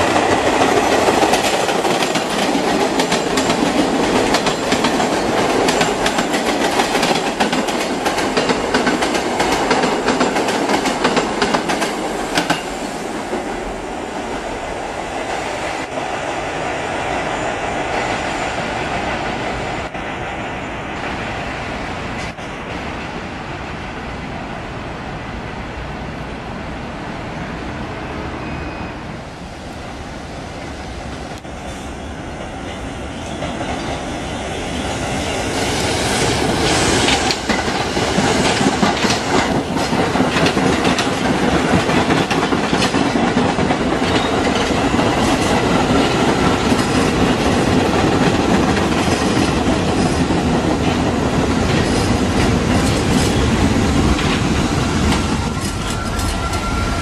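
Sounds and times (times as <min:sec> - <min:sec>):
subway train passing: 0:00.0 - 0:57.0
wheel squeal: 0:55.6 - 0:57.0.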